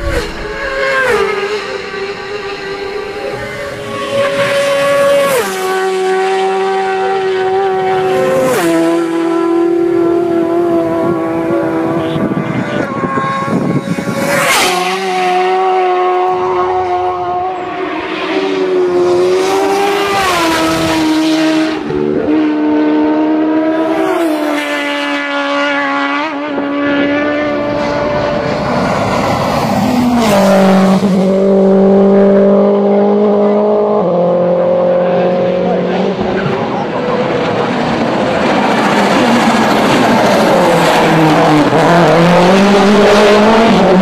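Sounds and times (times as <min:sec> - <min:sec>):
racing engines at high revs: 0:00.0 - 0:44.0
racing motorcycle passing: 0:00.0 - 0:44.0.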